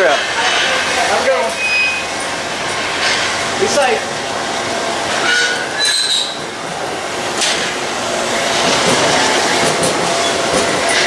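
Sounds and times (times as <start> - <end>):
train wheels on rails: 0.0 - 11.0
high-pitched wheel squeals: 1.5 - 2.1, 5.2 - 6.4.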